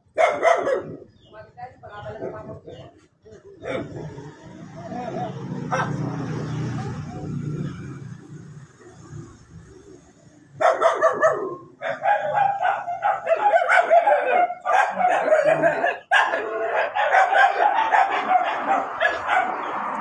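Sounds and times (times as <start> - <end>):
dog barking rapidly: 0.0 - 1.2, 5.6 - 6.3, 10.6 - 19.9.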